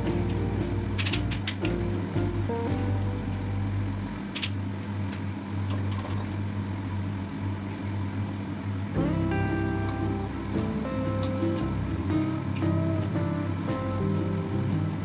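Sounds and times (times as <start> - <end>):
background music: 0.0 - 4.4, 9.0 - 15.0
steady low hum: 0.0 - 15.0.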